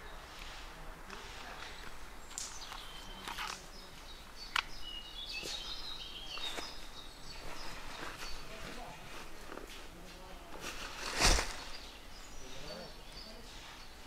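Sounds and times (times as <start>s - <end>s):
footsteps through undergrowth: 5.4s - 12.3s.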